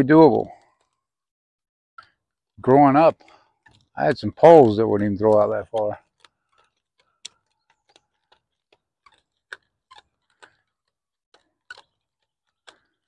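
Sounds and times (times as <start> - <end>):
fishing line winding clicks: 5.2 - 13.0.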